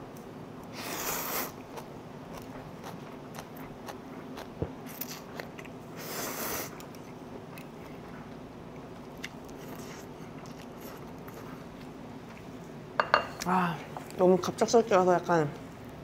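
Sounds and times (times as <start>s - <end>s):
person chewing crunchy food: 0.9s - 7.8s, 8.8s - 12.5s.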